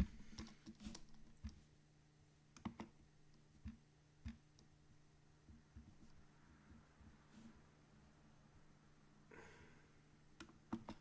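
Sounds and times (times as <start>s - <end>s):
low electrical hum: 0.0s - 11.0s
keyboard clicks: 2.6s - 2.9s.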